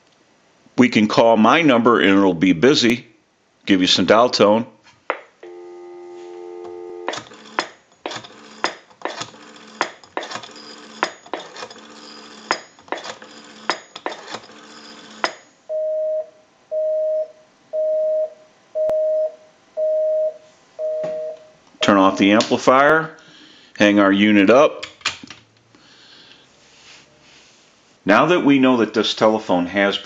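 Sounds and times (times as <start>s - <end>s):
telephone dial tone: 5.4s - 9.8s, 10.4s - 11.0s, 11.8s - 13.7s, 14.3s - 15.3s
two-tone busy signal beeps: 5.5s - 7.1s, 15.7s - 22.0s.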